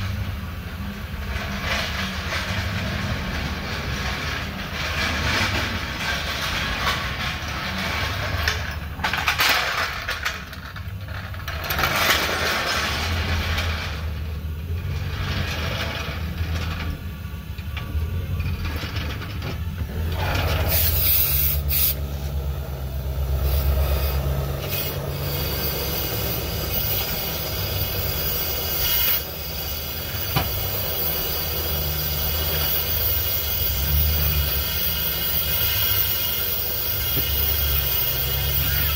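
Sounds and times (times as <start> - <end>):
gas torch flame rushing: 18.4 - 38.9.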